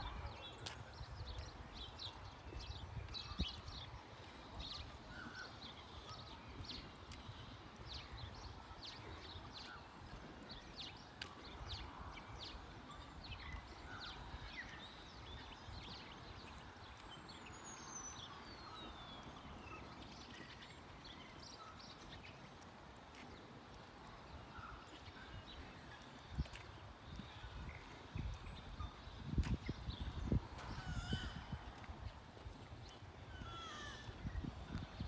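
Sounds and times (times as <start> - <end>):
wind on microphone: 0.0 - 16.9, 25.3 - 35.0
birds chirping: 0.0 - 35.0
footsteps on asphalt: 0.4 - 35.0.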